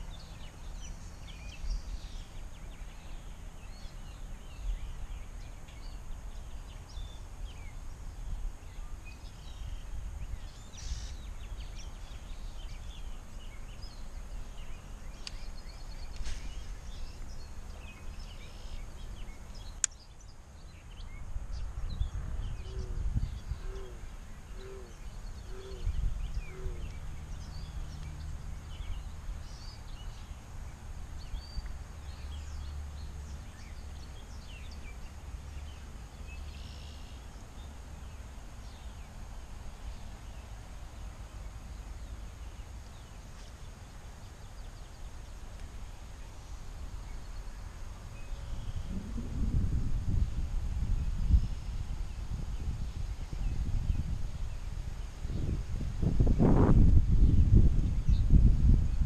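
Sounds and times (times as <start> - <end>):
small birds chirping: 0.0 - 59.0
low rumble: 48.5 - 52.9.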